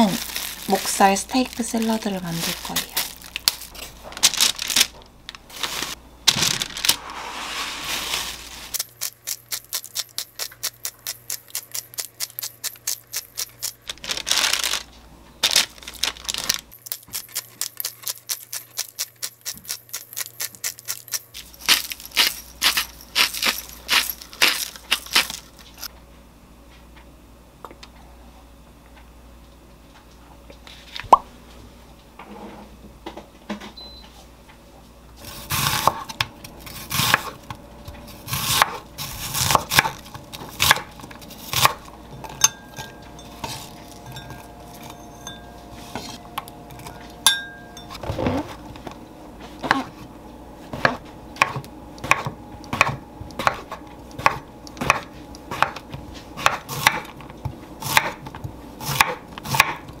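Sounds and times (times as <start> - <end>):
knife chopping on wooden board: 50.7 - 55.8, 56.4 - 57.1, 57.8 - 58.3, 58.9 - 59.9.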